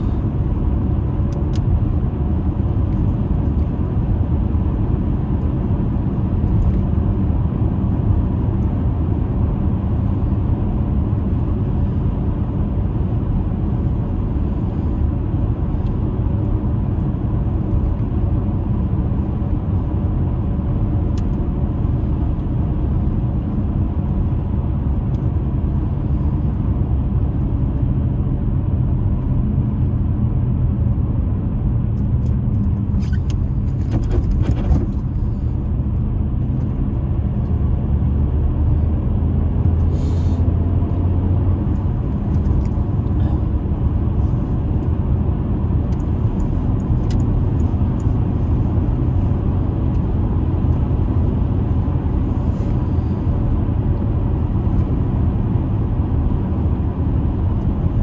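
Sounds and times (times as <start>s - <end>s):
car engine rumble: 0.0s - 58.0s
tyres on snowy road: 0.0s - 58.0s.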